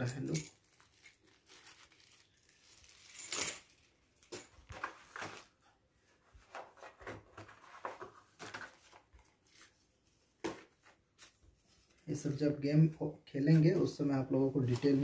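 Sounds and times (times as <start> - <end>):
game pieces clinking: 0.0 - 0.6
plastic rustling: 0.0 - 5.7.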